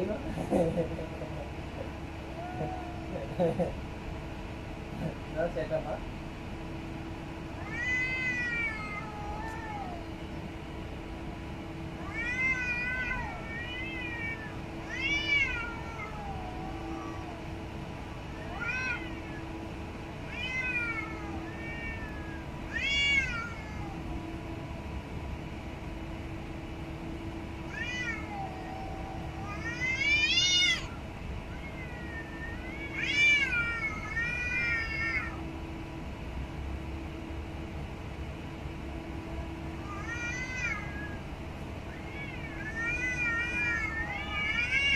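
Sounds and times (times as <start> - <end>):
cats meowing: 1.8 - 3.4, 7.5 - 10.4, 11.9 - 24.5, 27.6 - 35.5, 39.8 - 44.9.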